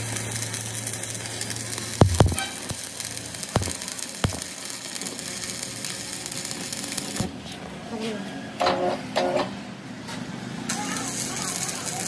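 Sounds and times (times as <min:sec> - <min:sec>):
sharp welding pops: 0:00.0 - 0:07.3
arc welding crackle: 0:00.0 - 0:07.4, 0:10.7 - 0:12.0.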